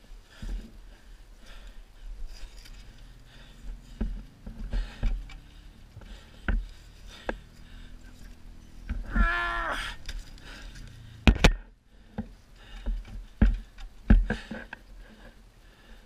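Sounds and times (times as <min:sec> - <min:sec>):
person groaning: 0:09.1 - 0:10.0
sharp knocks and clunks: 0:11.2 - 0:14.6.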